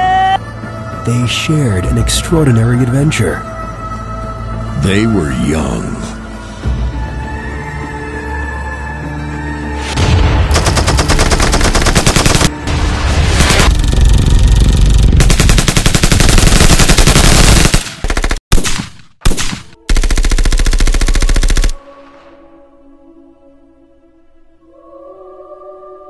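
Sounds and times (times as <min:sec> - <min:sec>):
automatic gunfire: 0:10.5 - 0:12.5, 0:15.2 - 0:21.8.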